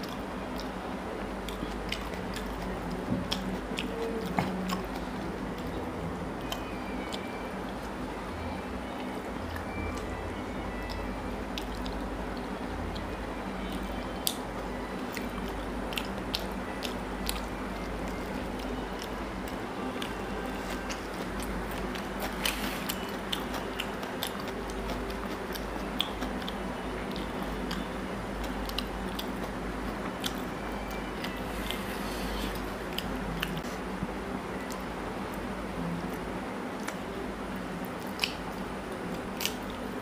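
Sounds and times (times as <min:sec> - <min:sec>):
person chewing food: 0:01.4 - 0:08.0, 0:09.0 - 0:33.8, 0:37.8 - 0:40.0
lip smacks: 0:38.0 - 0:39.8.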